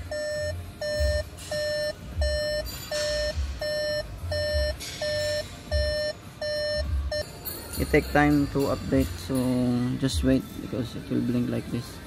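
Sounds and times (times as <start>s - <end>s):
electronic beeper tones: 0.0s - 7.2s.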